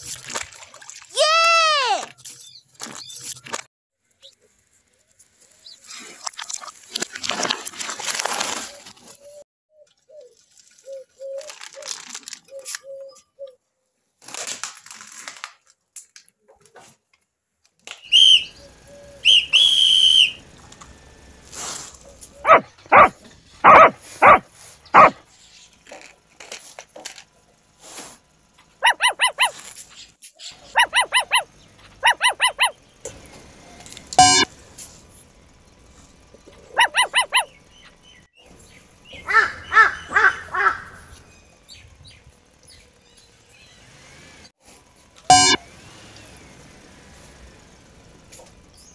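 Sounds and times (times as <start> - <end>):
high whistle-like squeaks: 18.0 - 18.6, 19.2 - 20.4, 34.2 - 34.5, 45.3 - 45.6
rapid chirping calls: 18.1 - 20.4, 22.1 - 25.6, 28.8 - 33.0, 34.2 - 34.5, 36.6 - 38.3.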